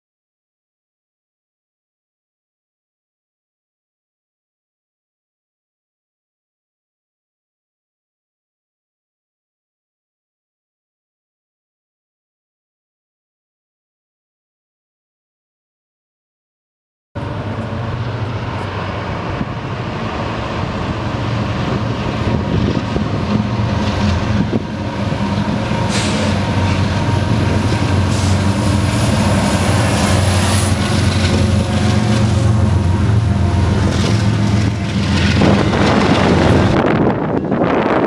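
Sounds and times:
diesel locomotive engine drone: 17.2s - 38.0s
freight cars rumbling by: 17.2s - 38.0s.

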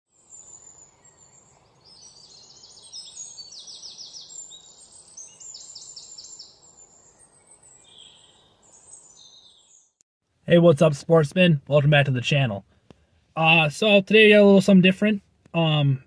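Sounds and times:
small birds singing: 0.1s - 10.0s, 15.5s - 16.0s.

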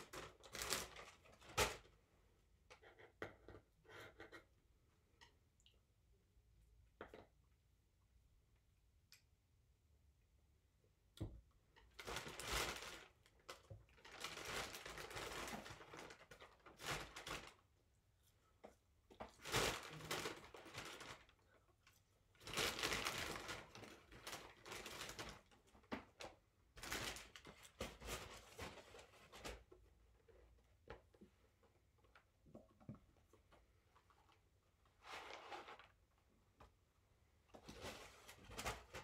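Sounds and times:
paper bag rustling and crinkling: 12.0s - 17.6s, 19.4s - 21.4s.

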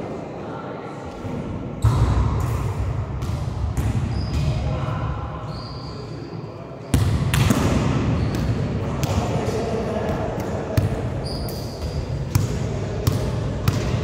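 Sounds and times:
murmur of players: 0.0s - 14.0s
volleyball slaps and thuds: 1.8s - 4.6s, 7.0s - 9.4s.

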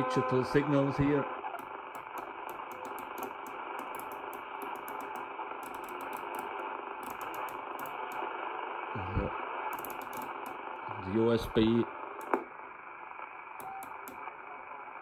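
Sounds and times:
radio static hiss: 0.0s - 15.0s
radio knob clicking: 9.7s - 10.6s.

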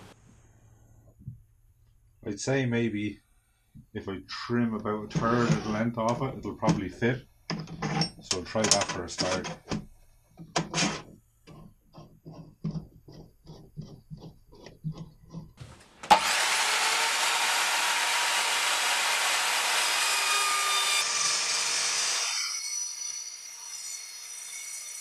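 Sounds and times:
mitre saw cutting casing: 10.6s - 25.0s.

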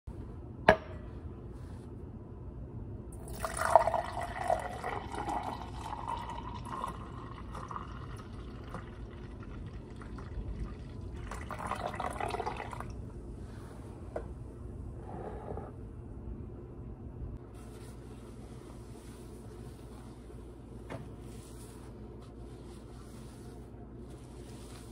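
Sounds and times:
juice poured into a glass: 3.2s - 13.0s.

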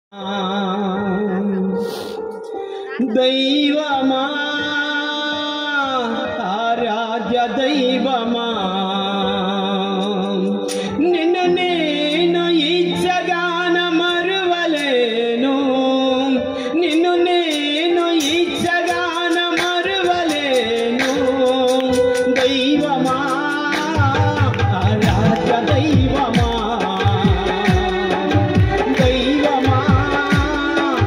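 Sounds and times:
man singing into microphone: 0.1s - 31.0s
instrumental accompaniment: 0.2s - 31.0s.

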